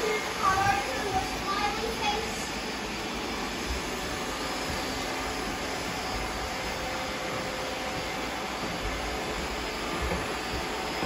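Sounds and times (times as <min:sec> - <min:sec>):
robot vacuum cleaners whirring: 0:00.0 - 0:11.0.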